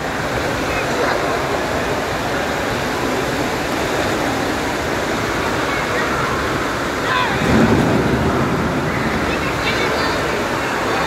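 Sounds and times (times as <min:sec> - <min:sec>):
water pouring into splash pool: 0:00.0 - 0:11.0.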